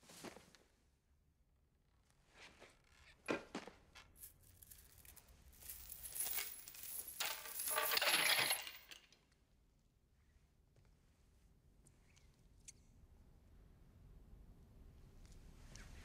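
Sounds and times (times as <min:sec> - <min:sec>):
metal chain clinking and rattling: 0:04.2 - 0:09.2.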